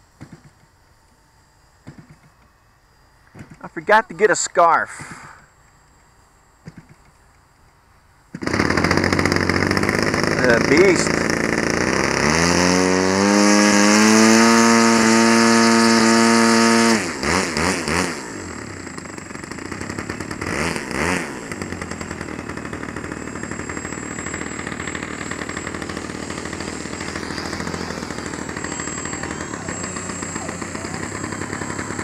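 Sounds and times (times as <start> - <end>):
model plane electric motor whining: 8.3 - 32.0.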